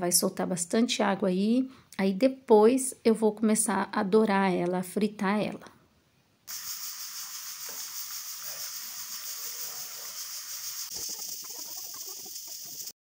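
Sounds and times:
meat sizzling in lard: 6.5 - 12.9.

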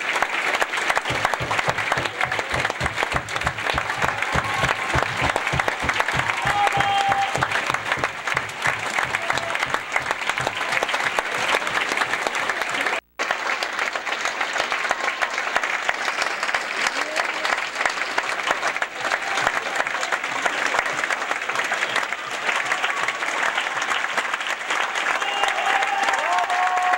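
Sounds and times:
audience applauding: 0.0 - 26.9.

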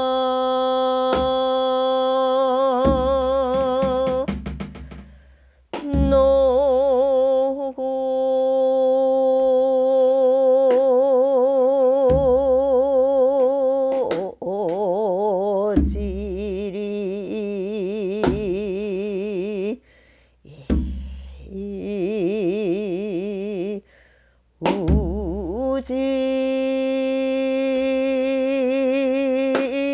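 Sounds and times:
woman singing long vibrato note: 0.0 - 4.3, 5.8 - 19.8, 20.5 - 23.8, 24.6 - 29.9
low drum thumps: 2.8 - 7.0, 12.1 - 12.9, 15.6 - 16.6, 20.6 - 21.5, 24.6 - 25.7.

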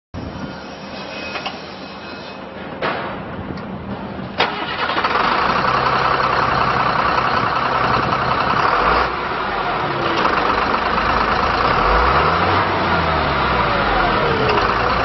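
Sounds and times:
diesel engine idling: 4.4 - 15.0.

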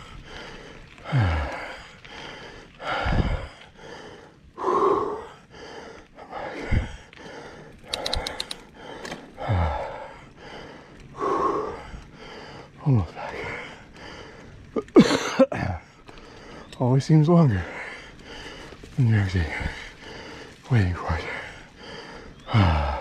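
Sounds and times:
heavy gasping breaths: 0.0 - 14.8, 15.4 - 16.8, 17.4 - 23.0
sharp clicks: 7.8 - 9.3.

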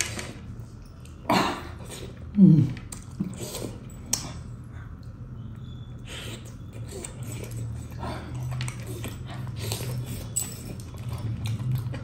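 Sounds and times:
man chewing meat: 2.9 - 12.0.

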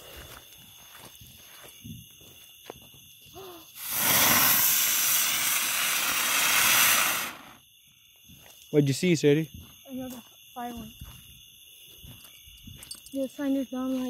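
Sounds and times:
firework sparks hissing: 3.7 - 7.6.

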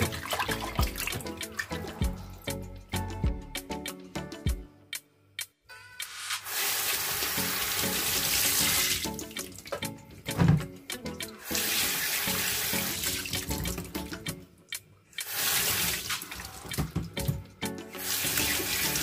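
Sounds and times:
tap water running into sink: 0.0 - 2.2, 6.4 - 14.4, 15.2 - 19.0.

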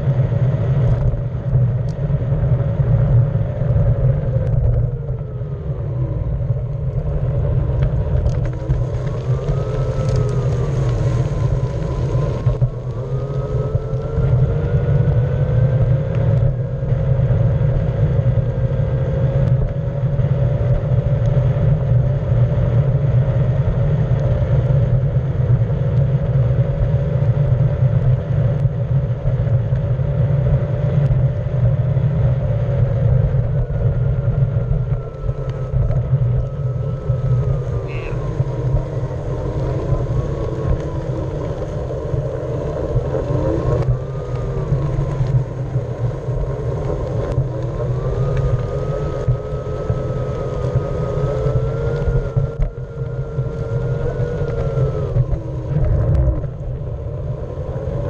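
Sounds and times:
electric motor whine: 0.8 - 25.1, 32.6 - 58.0
tyre rumble on asphalt: 6.5 - 16.4.

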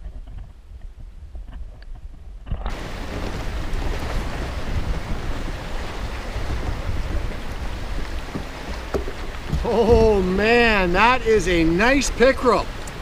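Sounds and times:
wind buffeting microphone: 0.0 - 13.0
waves slapping kayak: 2.7 - 13.0.

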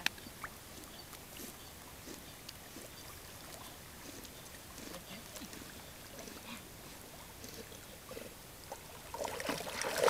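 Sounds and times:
dog paddling in water: 0.6 - 10.0
soft splashes: 8.7 - 10.0.

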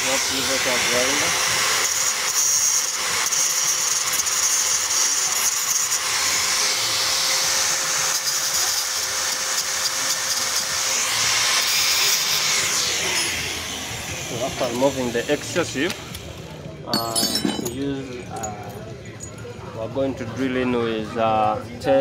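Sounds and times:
angle grinder whining: 0.0 - 16.5.

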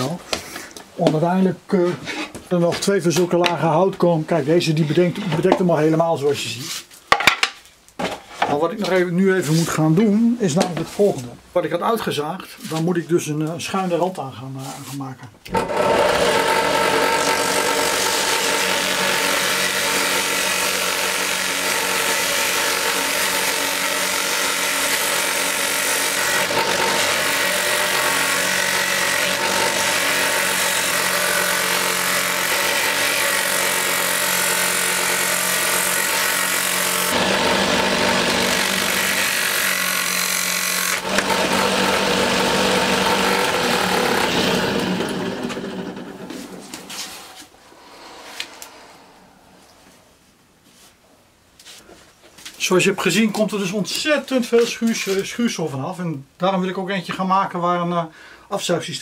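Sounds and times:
drill press motor hum: 15.5 - 46.6
sanding drum rasping wood: 15.6 - 45.2.

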